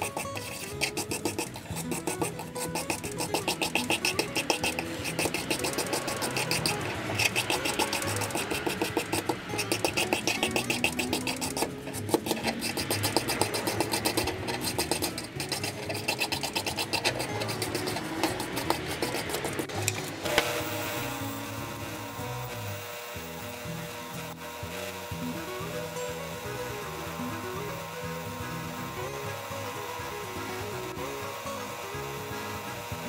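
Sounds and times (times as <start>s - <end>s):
rasping hand strokes on metal: 0.0s - 24.9s
wire wheel grinder running: 0.0s - 33.0s.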